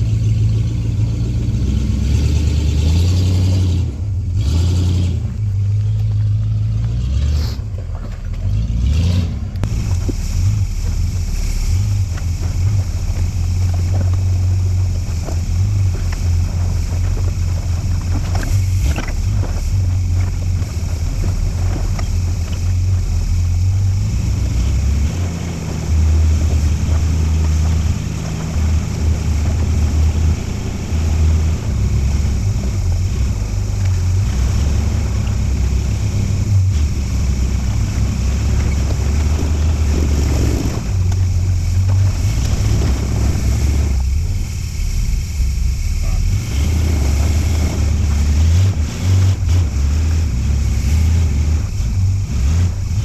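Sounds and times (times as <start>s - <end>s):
off-road vehicle engine running: 0.0s - 53.0s.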